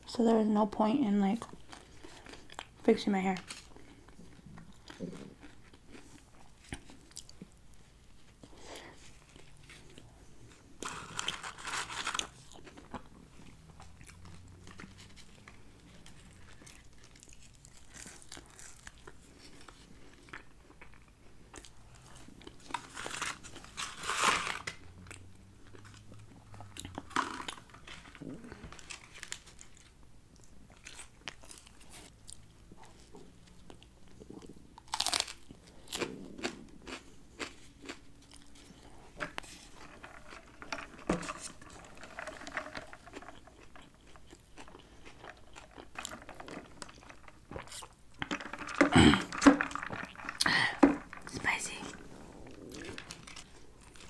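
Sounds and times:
chewing and crunching food: 0.5s - 54.0s.

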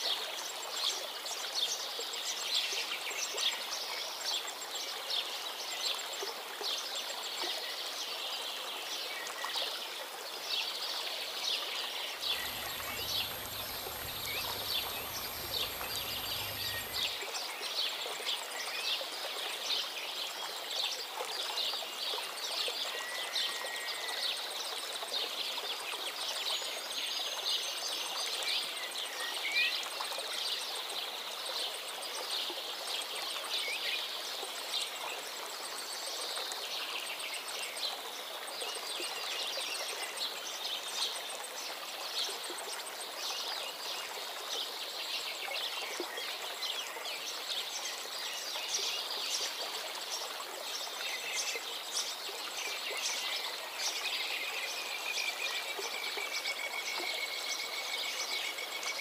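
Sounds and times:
running water: 8.6s - 18.6s
small birds chirping: 12.3s - 17.2s.

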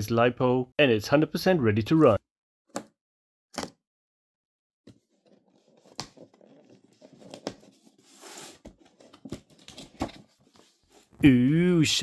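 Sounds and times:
cardboard scraping and rustling: 4.9s - 11.2s.

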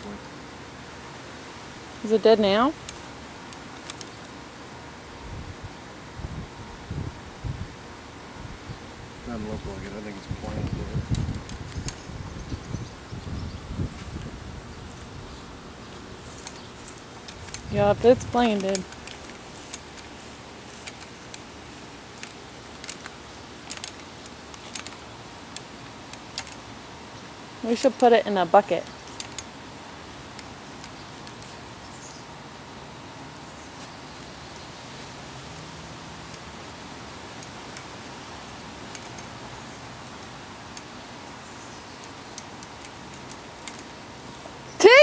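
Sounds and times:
low background hiss: 0.0s - 45.0s.

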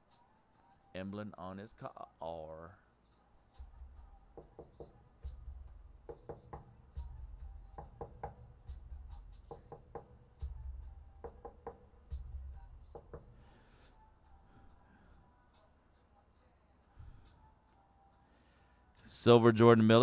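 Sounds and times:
background music with knocking beat: 3.5s - 18.0s.

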